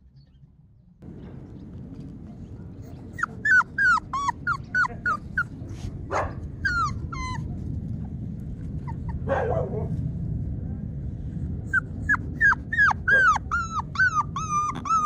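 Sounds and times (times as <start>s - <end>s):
puppy whining: 2.8s - 5.9s, 6.5s - 7.6s, 8.8s - 9.3s, 11.7s - 15.0s.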